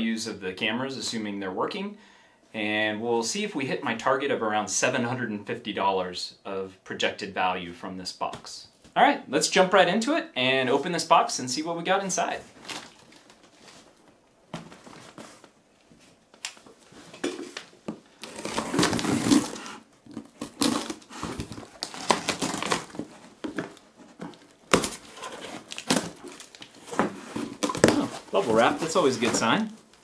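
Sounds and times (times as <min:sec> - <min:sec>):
tape crinkling: 0:12.5 - 0:30.0
cardboard scraping and knocking: 0:17.0 - 0:29.7
knife slitting packing tape: 0:18.2 - 0:23.0.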